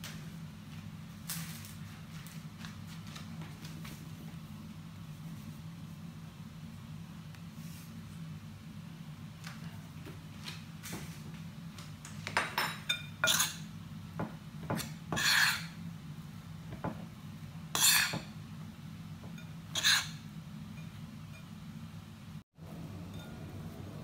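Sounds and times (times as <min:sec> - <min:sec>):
low steady hum: 0:00.0 - 0:24.0
metal spoon scraping a bowl: 0:13.2 - 0:13.6, 0:15.2 - 0:15.8, 0:17.7 - 0:18.3, 0:19.4 - 0:20.2.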